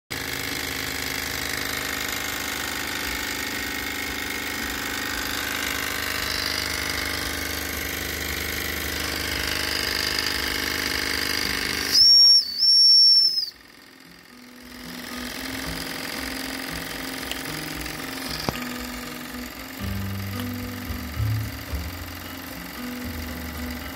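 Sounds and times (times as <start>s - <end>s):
toy steam engine chattering: 2.8s - 23.9s
steam whistle blasts: 11.8s - 13.6s.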